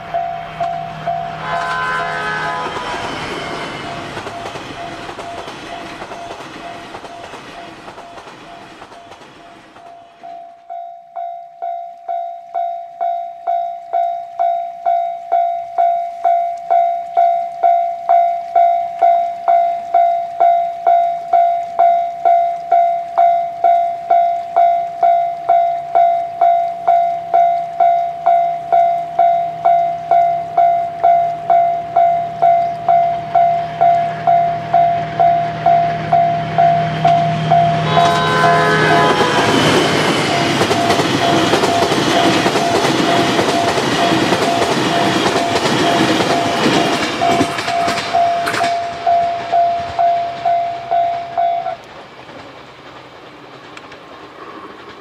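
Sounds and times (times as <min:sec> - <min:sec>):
train horn tone: 0:00.0 - 0:04.1, 0:29.6 - 0:51.8
train passing: 0:00.0 - 0:11.3, 0:12.0 - 0:55.0
level-crossing warning bell: 0:00.0 - 0:51.9.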